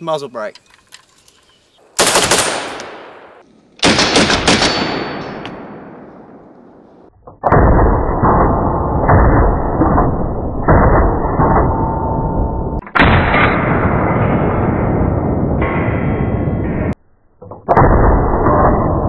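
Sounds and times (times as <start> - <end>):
duller rifle shots: 1.8 - 7.1
rifle shots ringing out: 1.9 - 7.1.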